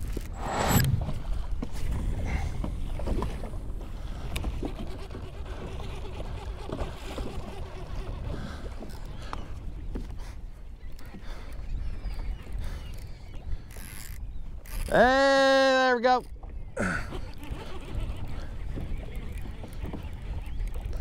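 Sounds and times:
wind rumbling on microphone: 0.0 - 10.9.

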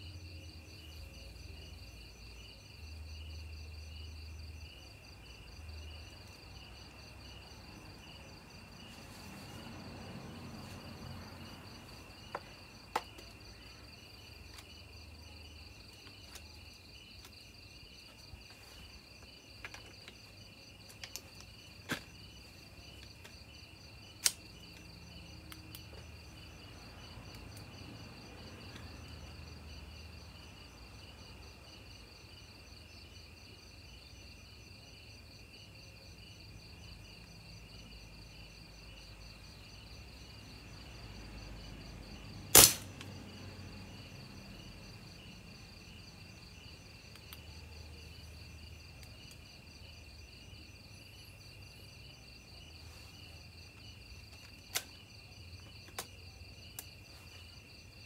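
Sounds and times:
crickets chirring: 0.0 - 58.0
air rifle shot: 42.6 - 42.9.

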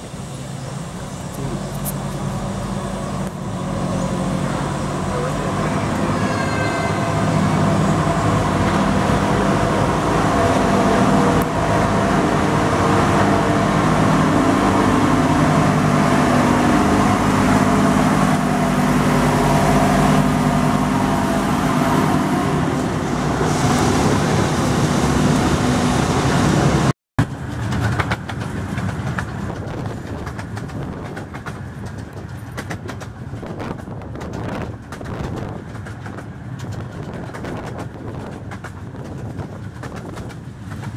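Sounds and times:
diesel locomotive engine: 0.0 - 40.9
train carriage running on track: 0.0 - 40.9
quick track clicks: 27.2 - 40.9.

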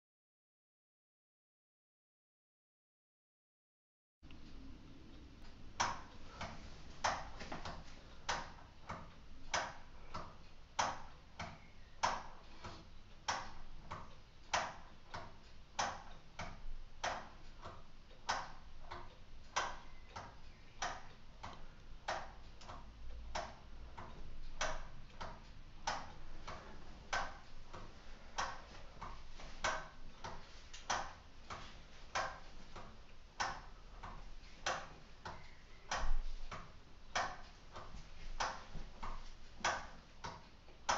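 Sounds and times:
clock ticking: 4.3 - 40.9.

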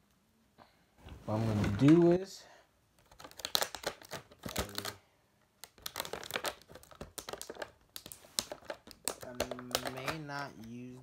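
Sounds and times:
plastic toy parts clicking: 5.6 - 10.3.

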